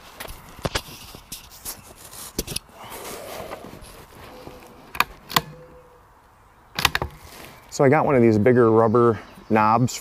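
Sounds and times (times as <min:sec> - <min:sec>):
metallic rifle bolt clicks: 0:04.9 - 0:05.7.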